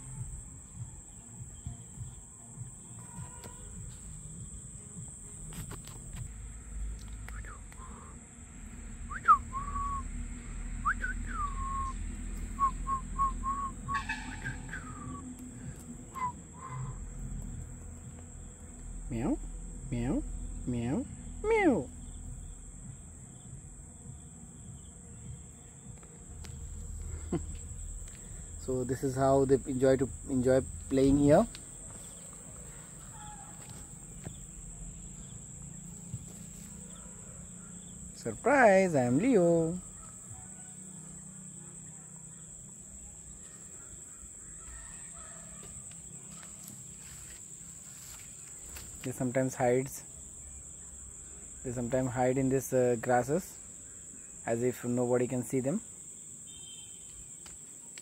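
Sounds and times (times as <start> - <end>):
crickets trilling: 0.0 - 58.0
low rumble: 6.2 - 14.0, 16.8 - 23.8
person whistling: 9.1 - 10.1, 10.8 - 12.0, 12.6 - 14.0, 16.2 - 16.9
crow cawing: 13.9 - 15.2, 32.5 - 33.9
faint ticks: 57.0 - 58.0.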